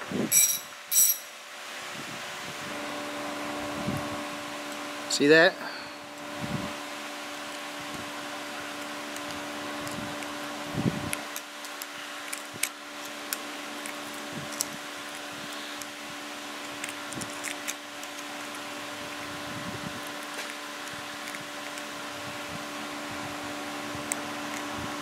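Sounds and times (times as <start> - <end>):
background hum: 0.0 - 25.0
metal pick clicking and scraping: 16.6 - 18.6.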